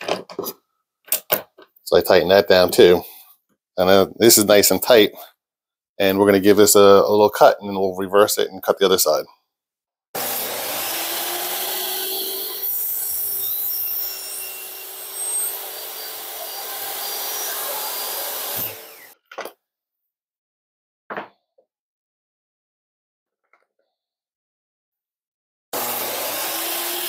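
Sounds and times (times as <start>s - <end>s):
table saw cutting wood: 10.2s - 19.2s, 25.8s - 27.0s.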